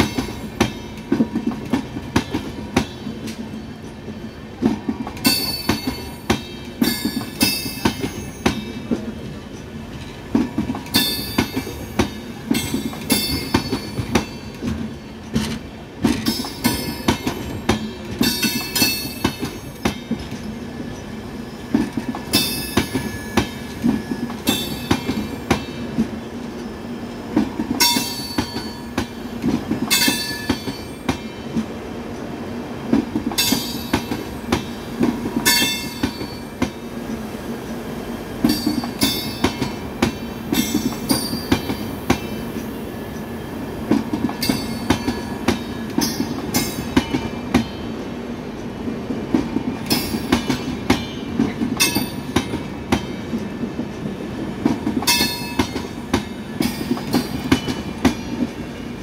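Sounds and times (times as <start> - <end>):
train coaches rumbling past: 0.0 - 59.0.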